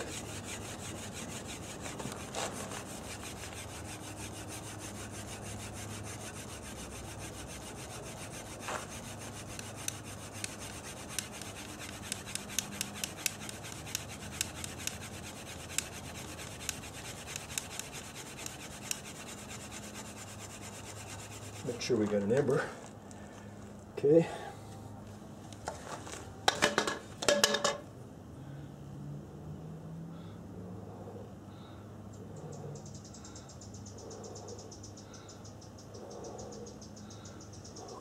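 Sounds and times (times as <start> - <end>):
bamboo scraping friction: 0.0 - 22.9
sharp ticks: 8.6 - 19.4.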